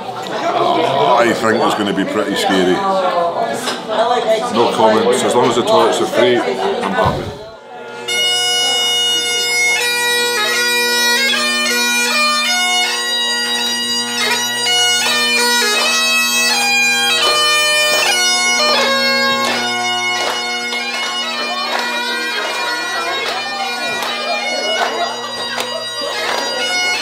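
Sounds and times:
bagpipe drones: 0:07.6 - 0:27.0
bagpipe chanter melody: 0:07.7 - 0:27.0.

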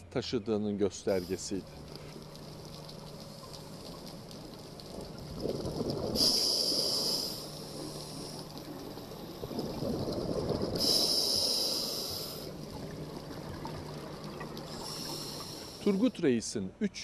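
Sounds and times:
regulator hissing inhalations: 0:01.1 - 0:02.2, 0:06.2 - 0:08.5, 0:10.8 - 0:12.6, 0:14.7 - 0:16.1
bubbling of exhaled air: 0:01.1 - 0:16.1.

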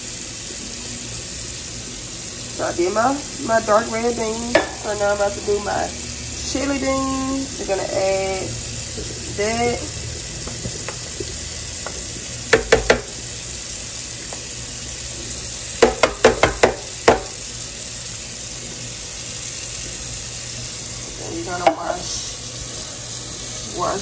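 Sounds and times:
steady hiss: 0:00.0 - 0:24.0
metal can tapping a colander: 0:12.6 - 0:13.1.

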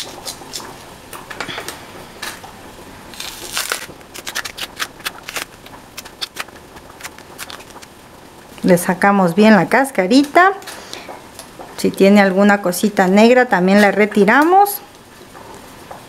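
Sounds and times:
knife scraping plantain skin: 0:03.1 - 0:07.9
peel being torn away: 0:03.1 - 0:07.9.

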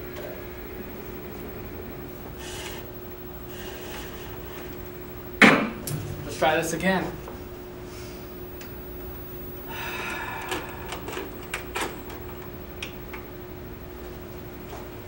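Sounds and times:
tape deck mechanical whir: 0:00.0 - 0:06.5, 0:09.7 - 0:13.5
steady hum: 0:00.0 - 0:15.0.

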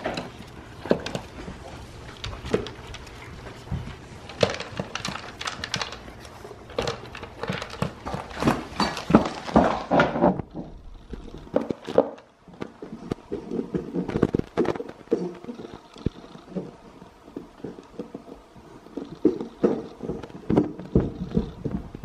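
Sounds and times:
kibble clattering in plastic bowl: 0:00.0 - 0:10.7
dog chewing: 0:00.0 - 0:22.0.

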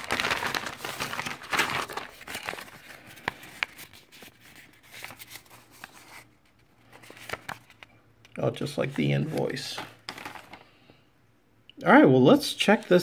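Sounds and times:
packaging rustling and crinkling: 0:00.0 - 0:07.9, 0:08.8 - 0:10.8.

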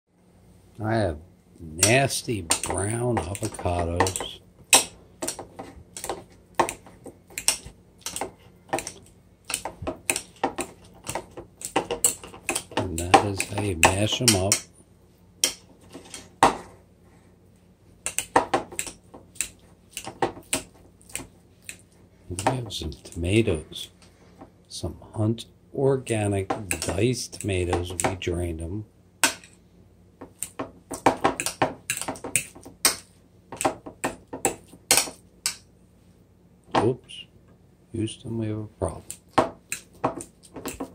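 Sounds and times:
fork mashing avocado in a bowl: 0:01.8 - 0:14.7, 0:18.0 - 0:23.2, 0:26.5 - 0:28.2, 0:30.2 - 0:35.6, 0:38.9 - 0:40.9.

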